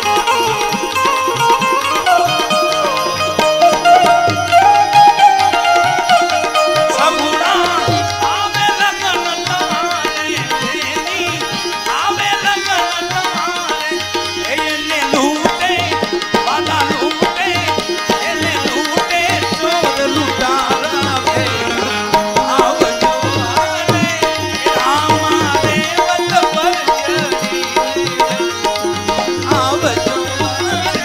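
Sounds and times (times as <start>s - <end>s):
tabla beat: 0.0s - 31.0s.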